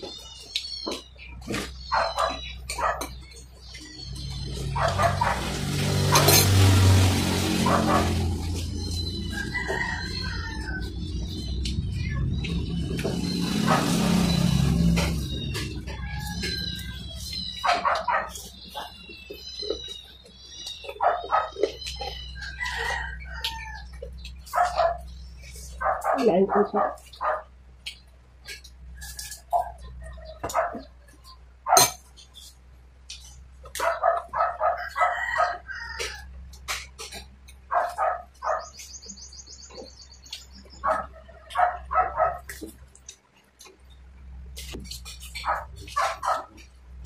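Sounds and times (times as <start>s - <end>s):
bird chirps: 0.0s - 5.4s, 7.9s - 31.4s, 37.8s - 42.3s
sharp eating clicks: 0.0s - 6.8s, 7.6s - 47.0s
dog barking: 1.9s - 3.1s, 4.7s - 5.6s, 7.6s - 8.2s, 17.6s - 18.9s, 21.0s - 21.7s, 24.5s - 25.1s, 25.8s - 27.5s, 29.5s - 30.9s, 31.7s - 32.0s, 33.7s - 35.6s, 37.7s - 38.8s, 40.8s - 42.5s, 45.4s - 46.6s
roosters crowing: 4.0s - 11.6s, 13.0s - 19.9s, 21.0s - 27.4s, 33.8s - 36.8s.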